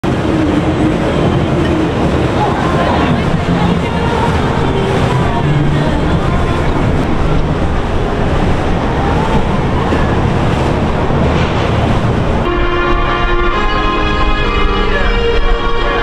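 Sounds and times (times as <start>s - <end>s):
water washing: 0.0s - 16.0s
wind noise on microphone: 0.0s - 16.0s
music: 0.2s - 9.4s, 12.5s - 16.0s.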